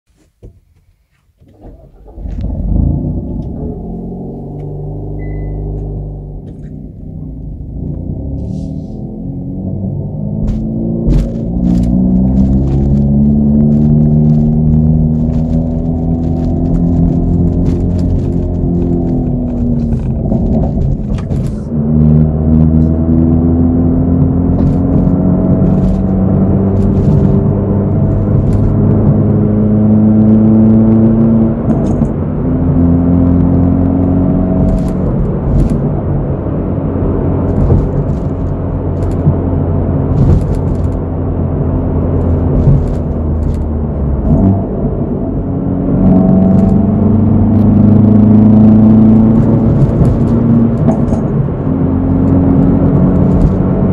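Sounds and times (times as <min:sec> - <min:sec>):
car engine accelerating: 0:01.4 - 0:53.9.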